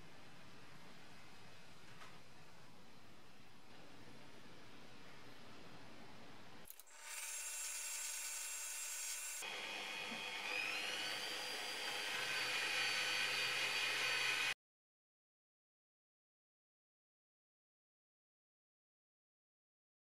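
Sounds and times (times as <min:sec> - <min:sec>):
drill press wire brush whining: 0:06.7 - 0:14.6.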